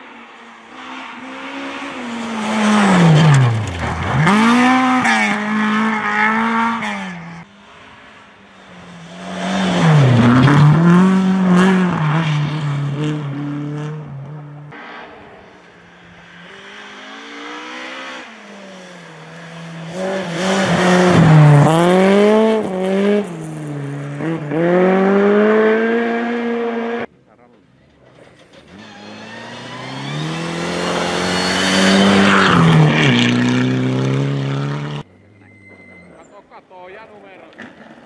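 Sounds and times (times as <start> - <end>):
rally car engines revving: 0.0 - 38.0.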